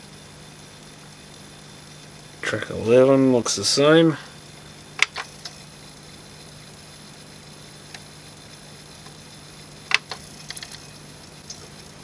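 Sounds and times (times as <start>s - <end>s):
steady low hum: 0.0s - 12.0s
cd player mechanism clicking: 5.0s - 5.6s, 9.8s - 10.8s.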